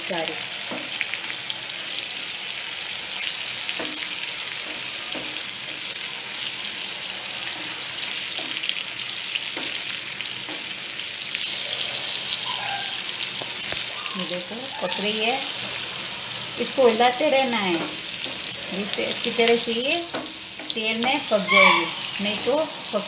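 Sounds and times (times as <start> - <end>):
okra sizzling in oil: 0.0 - 23.0
spatula scraping pan: 21.0 - 23.0.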